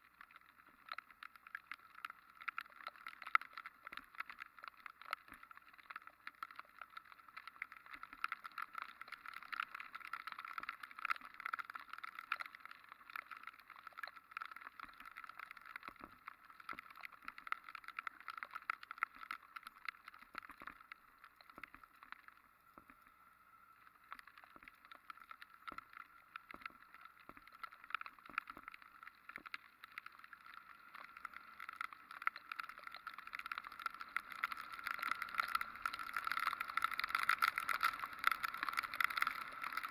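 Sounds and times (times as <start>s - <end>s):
raindrops tapping on camera: 0.0s - 39.9s
motorcycle tyre noise on wet road: 28.3s - 39.9s.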